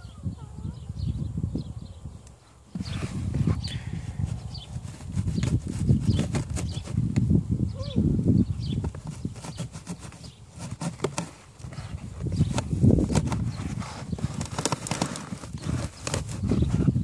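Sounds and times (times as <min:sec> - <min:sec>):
rumbling handling noise: 0:02.6 - 0:07.4, 0:08.4 - 0:17.0
filter scraping plastic housing: 0:08.8 - 0:16.8.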